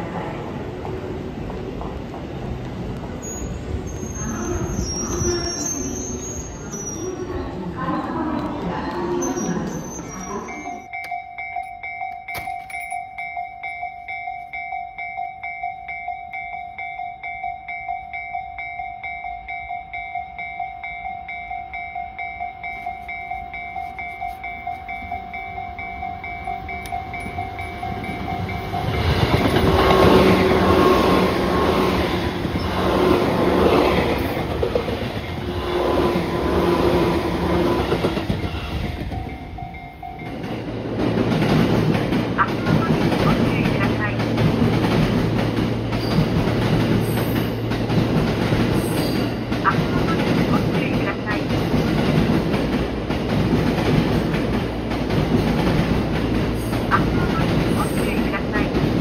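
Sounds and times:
level crossing bell ringing: 0:10.4 - 0:29.2, 0:38.7 - 0:40.5
train wheels clattering: 0:25.8 - 0:59.0.

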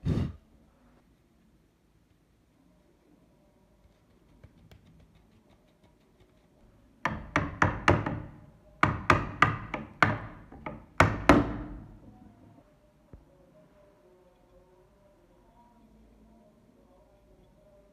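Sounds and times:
hammer knocking on metal: 0:07.0 - 0:11.8.

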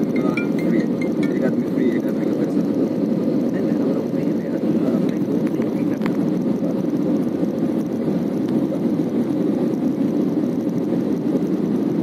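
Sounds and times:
jet cabin engine and airflow rumble: 0:00.0 - 0:12.0.

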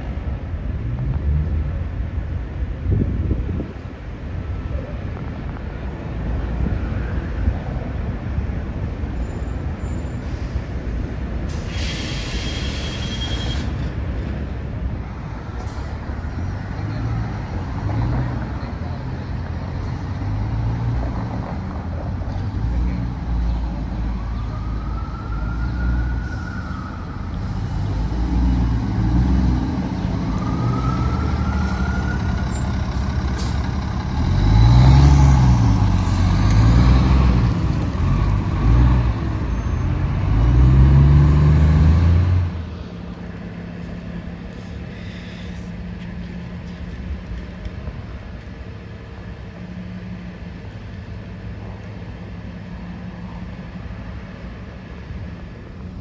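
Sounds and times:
bus engine revving: 0:27.4 - 0:42.6.

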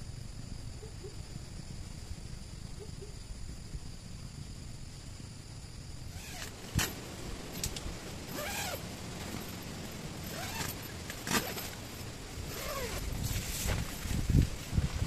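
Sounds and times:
steady background hiss: 0:00.0 - 0:15.0
zipper pulled: 0:06.1 - 0:07.0, 0:07.6 - 0:09.6, 0:10.2 - 0:11.8, 0:12.5 - 0:13.7.

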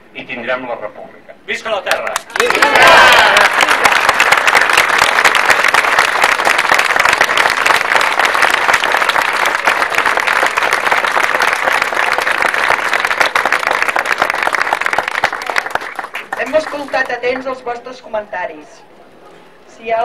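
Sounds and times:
crowd applauding: 0:01.9 - 0:17.5.

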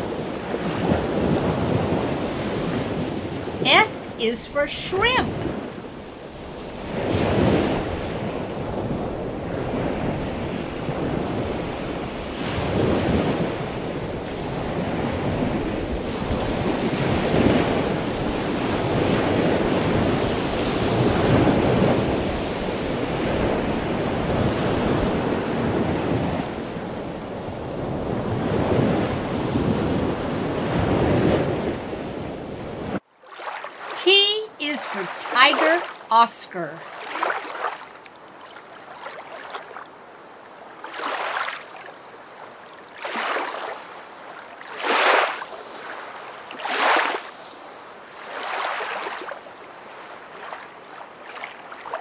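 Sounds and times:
rushing water: 0:33.0 - 0:52.0.

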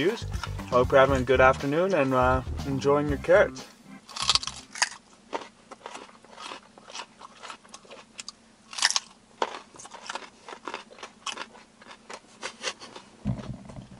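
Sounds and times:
people chewing raw carrots: 0:00.2 - 0:00.6, 0:04.1 - 0:13.9.

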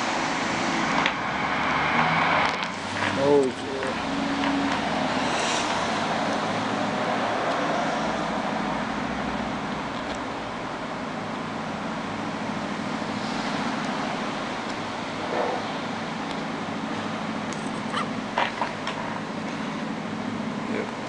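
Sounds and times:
continuous hiss and low rumble: 0:07.8 - 0:21.0.

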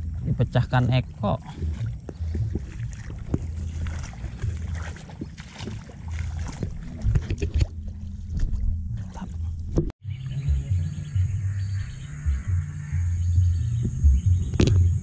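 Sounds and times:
wind rumble on microphone: 0:00.0 - 0:15.0
footsteps wading through water: 0:01.0 - 0:09.9.

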